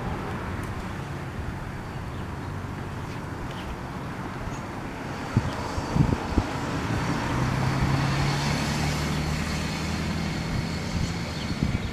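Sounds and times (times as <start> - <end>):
street traffic: 0.0 - 11.9
vehicle engine humming: 0.0 - 11.9.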